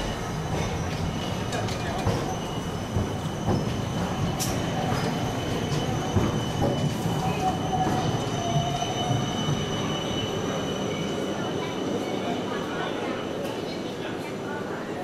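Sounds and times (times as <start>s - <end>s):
tram passing with high-pitched whine: 0.0s - 15.0s.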